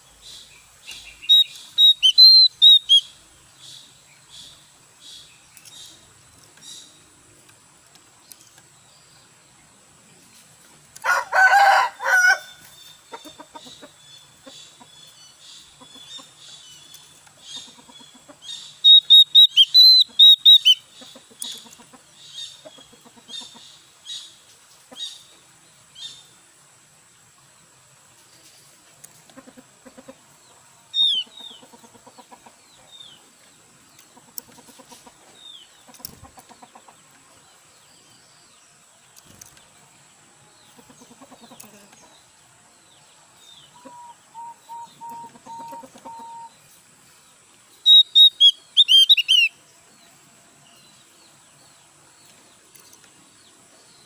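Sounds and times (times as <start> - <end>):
bird chirping: 0.0 - 10.7, 12.3 - 26.4, 30.4 - 54.0
rooster crowing: 11.0 - 12.6.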